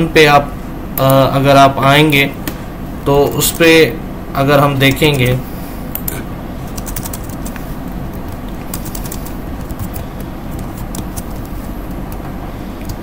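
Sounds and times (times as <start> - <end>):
background hiss and hum: 0.0 - 13.0
keyboard typing: 6.7 - 12.2, 12.8 - 13.0.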